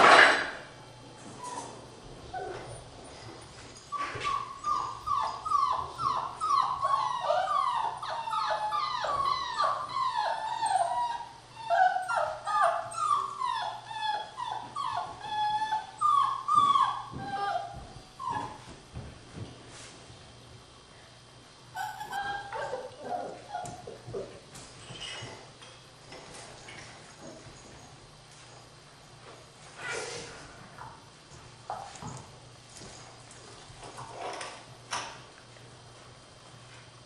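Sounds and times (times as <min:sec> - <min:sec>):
puppies whining and yipping: 0:01.2 - 0:18.7, 0:21.8 - 0:25.4.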